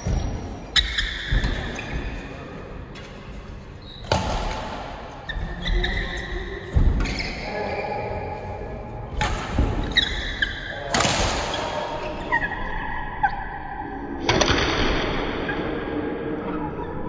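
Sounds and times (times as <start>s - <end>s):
shoes squeaking on court floor: 0.0s - 12.6s
rackets hitting shuttlecock: 9.1s - 12.0s.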